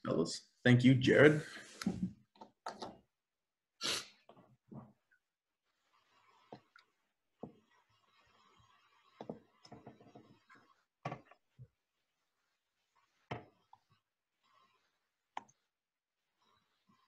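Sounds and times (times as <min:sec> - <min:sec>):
faint knocks and clicks: 0:09.2 - 0:11.4.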